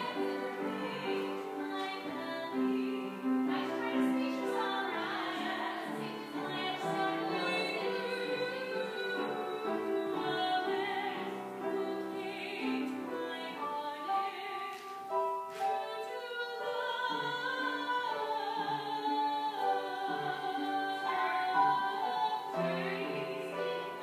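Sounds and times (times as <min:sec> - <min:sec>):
operatic singing: 0:00.0 - 0:14.8
waltz music: 0:00.0 - 0:24.0.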